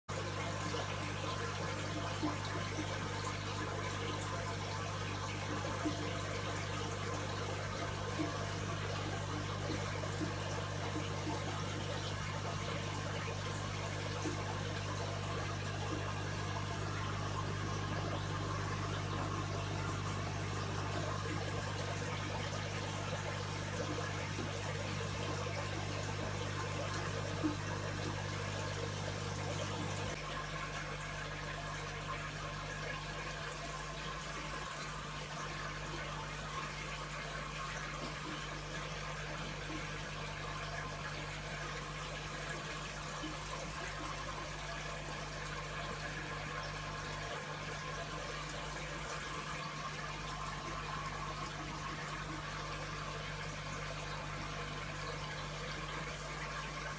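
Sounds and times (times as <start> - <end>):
aquarium filter hum: 0.1 - 56.9
water trickling: 0.1 - 56.9.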